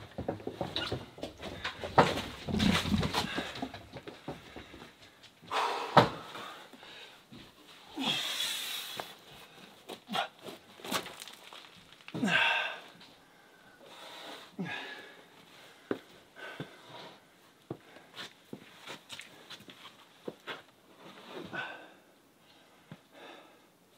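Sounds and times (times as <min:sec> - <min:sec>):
wooden knocks: 0:00.0 - 0:05.0.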